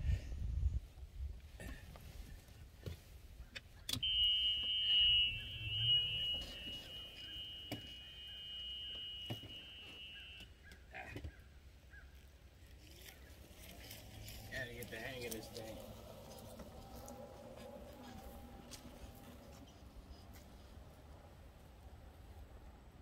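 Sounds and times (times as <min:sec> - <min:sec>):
electronic warning buzzer: 0:04.0 - 0:10.6.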